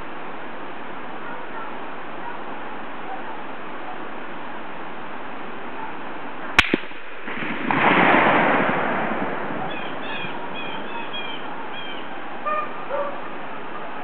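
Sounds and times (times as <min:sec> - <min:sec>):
rifle shot: 0:06.6 - 0:10.6
rolling rumble of gunshot echo: 0:06.6 - 0:11.8
birds chirping: 0:09.2 - 0:14.0.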